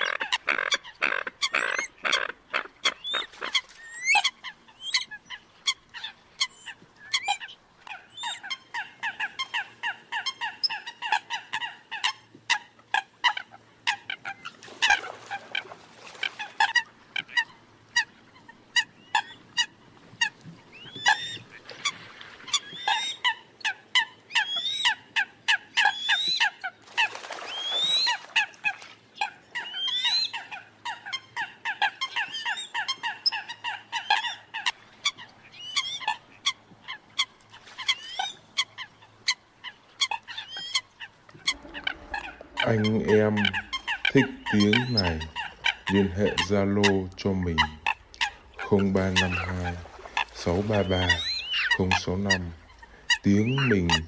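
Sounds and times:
coots honking calls: 0.0s - 54.0s.

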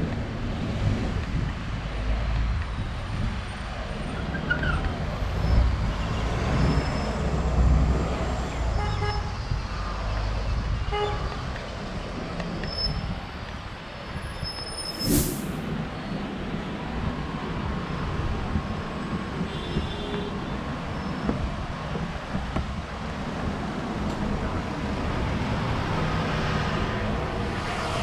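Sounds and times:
traffic rumble: 0.0s - 28.0s
brief noise burst: 14.9s - 15.6s.

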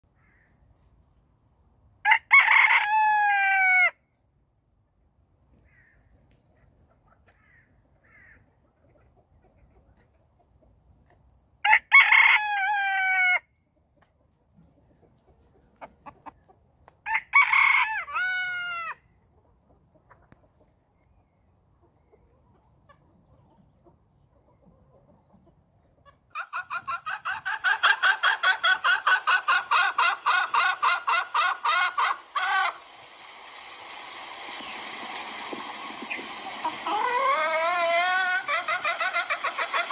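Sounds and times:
rooster crowing: 2.1s - 3.9s
chickens clucking: 6.5s - 7.8s, 8.4s - 11.3s, 13.7s - 17.0s, 19.1s - 39.9s.

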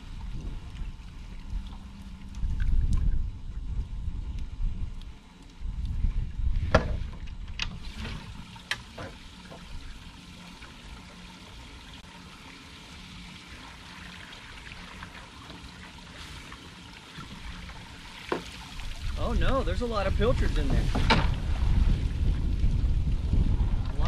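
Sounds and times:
wind rumbling on microphone: 0.0s - 8.6s, 17.4s - 24.0s
water trickling and dripping: 0.0s - 24.0s.

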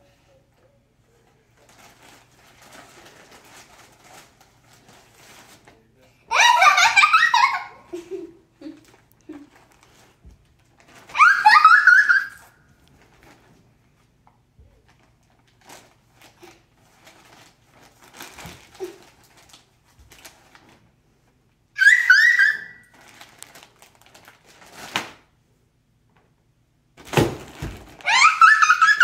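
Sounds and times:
plastic bags rustling: 1.4s - 5.9s, 8.0s - 11.4s, 14.6s - 21.0s, 22.8s - 25.3s, 27.0s - 29.0s
girl giggling: 6.3s - 9.6s.

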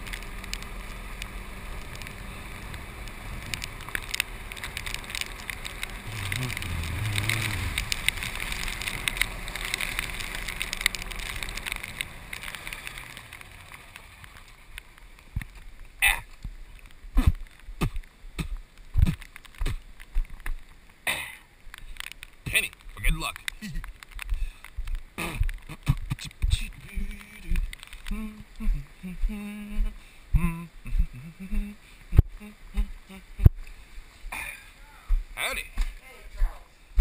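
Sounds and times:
golf cart driving on wet road: 0.0s - 29.0s.

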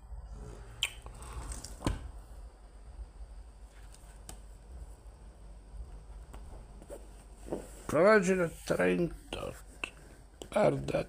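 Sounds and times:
low steady hum: 0.0s - 11.0s
book pages handled: 3.7s - 4.6s.

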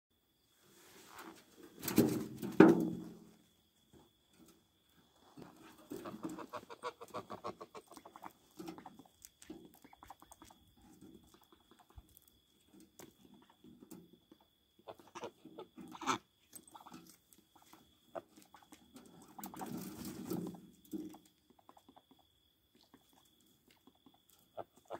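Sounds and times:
poultry calling softly: 5.4s - 10.6s, 11.2s - 12.3s, 14.2s - 19.8s, 21.0s - 24.9s.

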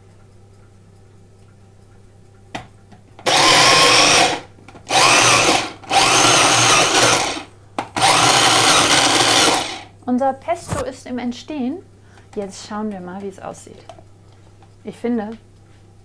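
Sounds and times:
food processor click: 3.2s - 9.9s
food processor whirring: 3.2s - 9.9s.

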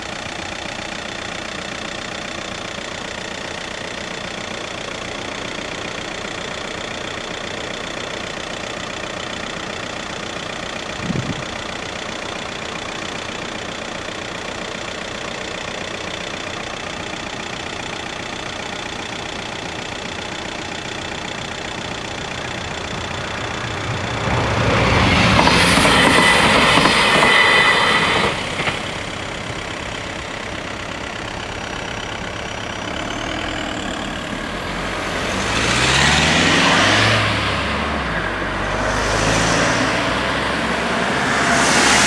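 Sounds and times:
cars driving over crossing: 19.6s - 42.0s
diesel railcar passing: 21.1s - 42.0s.

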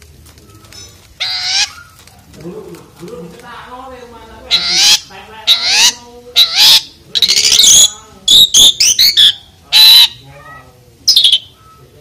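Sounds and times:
starling singing: 1.2s - 2.0s, 4.4s - 11.9s.

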